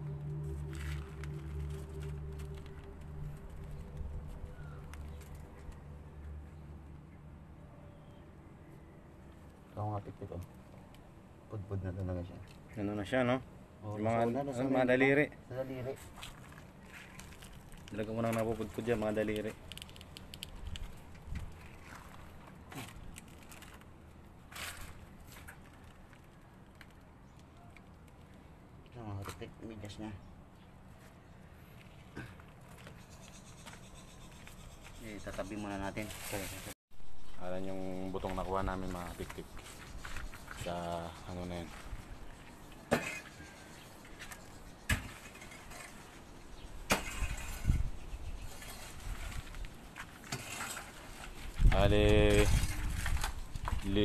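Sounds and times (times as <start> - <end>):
gloved hands rustling debris: 16.1 - 28.2.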